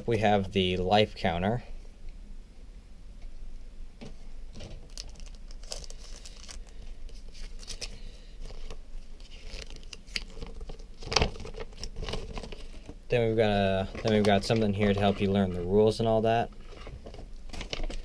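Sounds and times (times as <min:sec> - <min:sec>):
paper packaging crinkling: 0:04.5 - 0:13.0, 0:13.7 - 0:15.8, 0:16.5 - 0:18.0
sharp paper crackle: 0:04.6 - 0:13.0.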